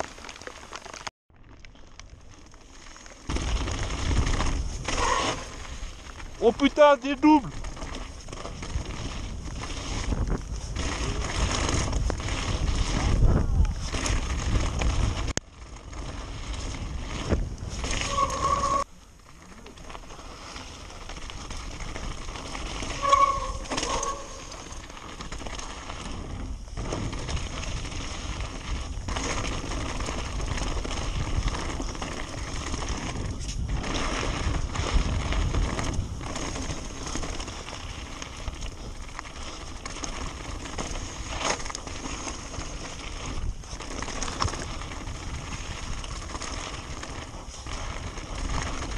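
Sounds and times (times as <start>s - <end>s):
bike rattling over bumps: 0.0s - 48.9s
tyres crunching over loose stones: 0.0s - 48.9s
short squeals: 17.9s - 18.9s, 22.8s - 24.7s.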